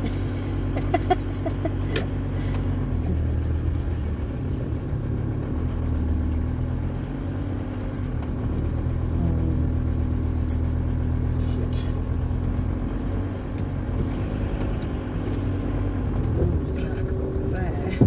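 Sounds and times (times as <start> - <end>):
van engine running at low revs: 0.0 - 18.0.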